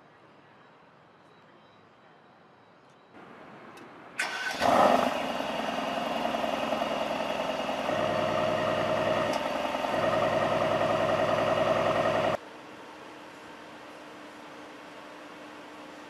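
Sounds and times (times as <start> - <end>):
car engine starting and idling: 4.2 - 12.4.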